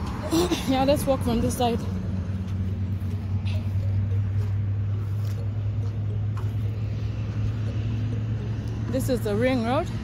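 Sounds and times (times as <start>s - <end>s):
outdoor background noise: 0.0s - 10.0s
footsteps on dry dirt: 1.7s - 8.9s.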